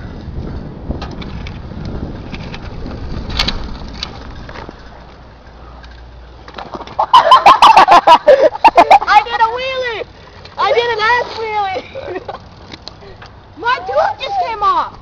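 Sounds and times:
wind rumble on camera: 0.0 - 5.2.

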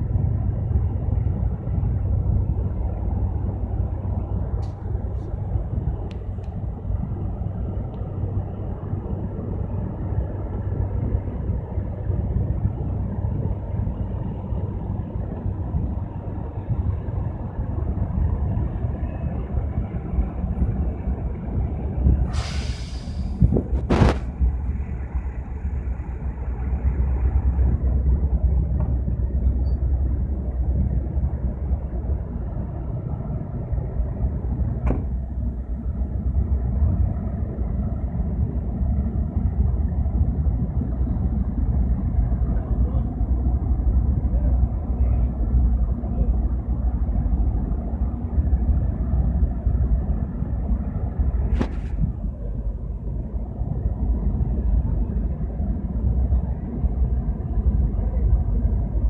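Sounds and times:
ship diesel engines rumbling: 0.0 - 59.0
short hiss: 22.3 - 24.3.

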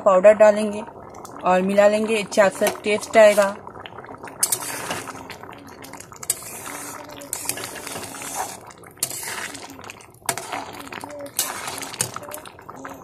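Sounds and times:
thick liquid bubbling: 0.0 - 13.0
metal spoon scraping metal pot: 4.4 - 5.1, 6.2 - 9.6, 10.3 - 12.2.

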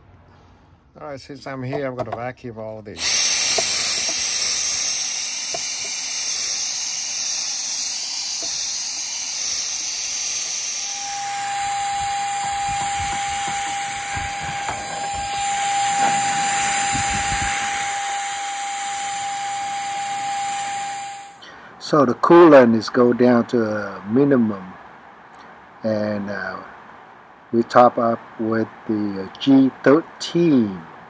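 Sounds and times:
steady whine: 2.9 - 23.0
handheld vacuum cleaner running: 3.0 - 21.4.

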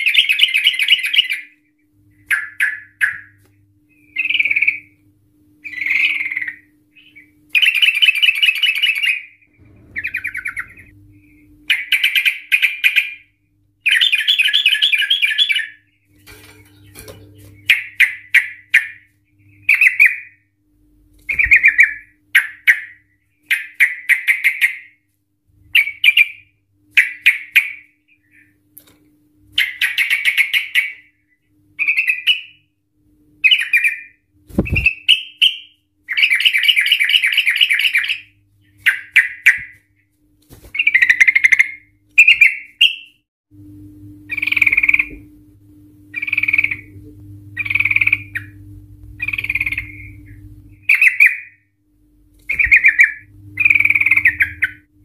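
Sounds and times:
bird singing chattering trills: 2.2 - 5.0, 5.6 - 11.0, 11.7 - 15.9, 46.1 - 47.0, 47.6 - 48.6, 49.2 - 51.6, 52.5 - 54.9.

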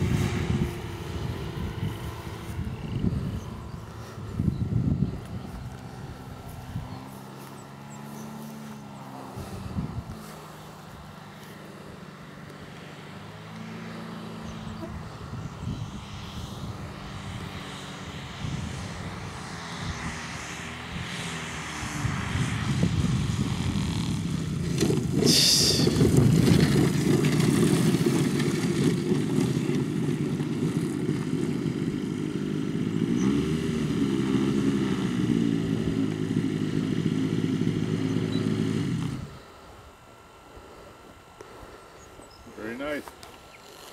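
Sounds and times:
model plane engine running: 0.0 - 43.9
brief hiss: 25.2 - 26.0.

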